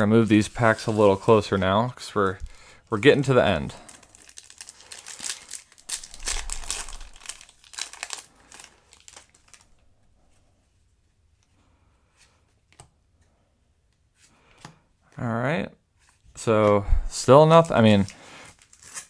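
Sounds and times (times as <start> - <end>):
foil wrapper crinkling and tearing: 3.2 - 9.8, 17.6 - 19.0.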